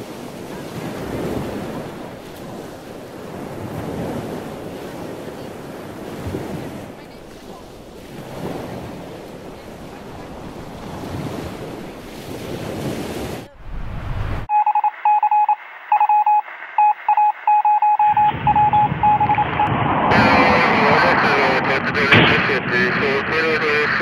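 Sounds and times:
wind buffeting microphone: 0:00.0 - 0:14.5
rushing noise: 0:13.4 - 0:24.0
electronic beeps: 0:14.5 - 0:19.7.

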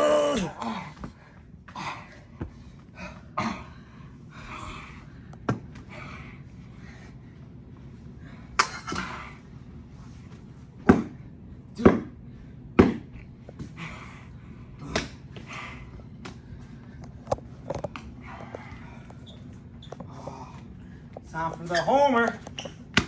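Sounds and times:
breathy grunts: 0:00.2 - 0:05.1
sharp thuds and slaps: 0:10.8 - 0:11.2, 0:12.8 - 0:13.1.

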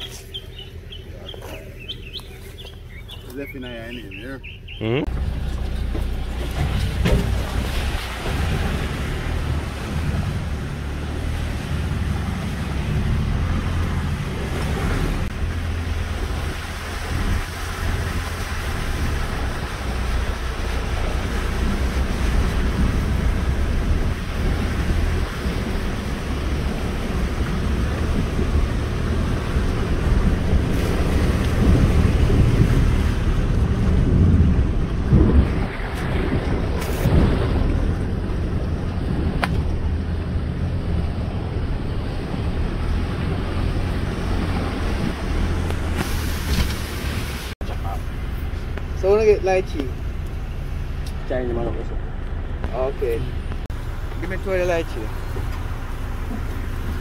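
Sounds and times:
car rumbling on dirt track: 0:00.0 - 0:57.0
wind noise on microphone: 0:04.4 - 0:47.6.

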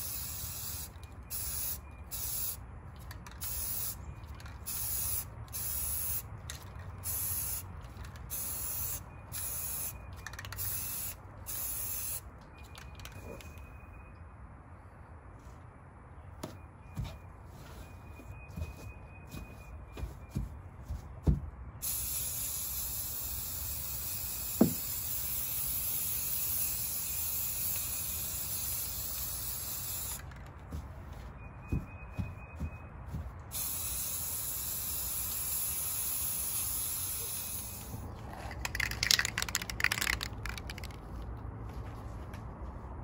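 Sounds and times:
spray can hissing: 0:00.0 - 0:02.6, 0:03.4 - 0:04.0, 0:04.6 - 0:06.2, 0:07.0 - 0:07.7, 0:08.3 - 0:12.2, 0:21.8 - 0:30.2, 0:33.5 - 0:41.0.

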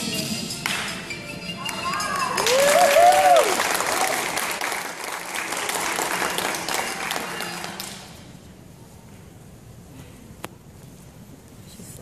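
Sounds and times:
audience applauding: 0:01.6 - 0:08.1
person cheering: 0:01.8 - 0:03.6.

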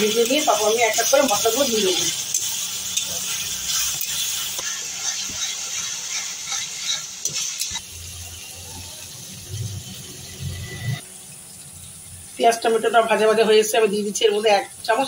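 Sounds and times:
vegetables sizzling in oil: 0:00.0 - 0:15.0
spatula scraping a metal pan: 0:00.1 - 0:07.8.

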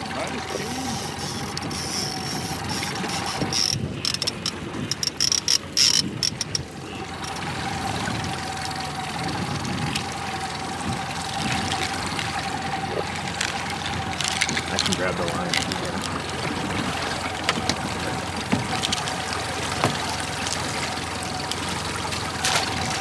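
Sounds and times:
outboard motor humming: 0:00.0 - 0:23.0
fishing reel ratcheting: 0:00.5 - 0:07.4.

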